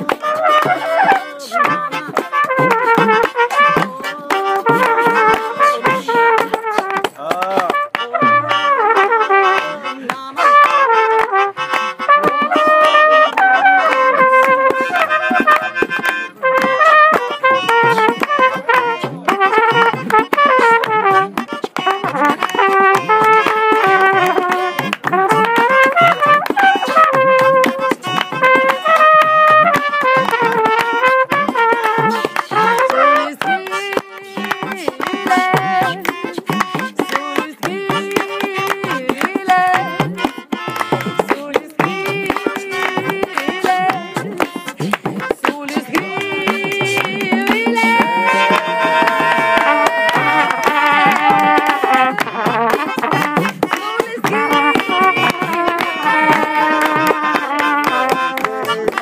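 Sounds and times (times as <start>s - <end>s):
hand drums: 0.0s - 59.0s
people clapping: 0.0s - 59.0s
trumpet melody: 0.0s - 59.0s.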